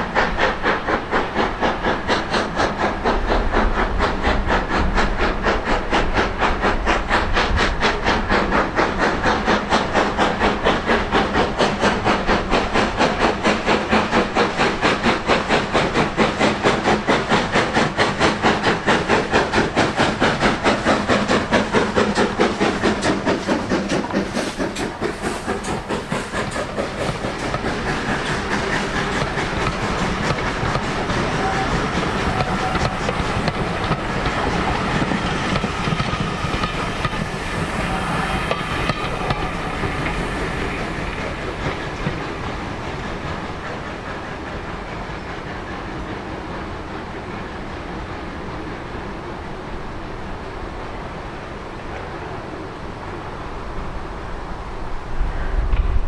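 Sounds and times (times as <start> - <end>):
wheels clattering on rails: 0.0 - 46.1
steam locomotive exhaust beating: 0.0 - 56.0.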